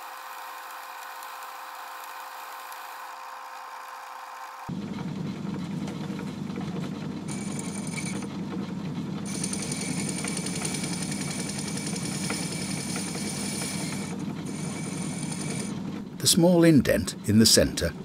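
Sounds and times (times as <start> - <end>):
metal lathe humming: 7.2 - 8.3, 9.3 - 16.7.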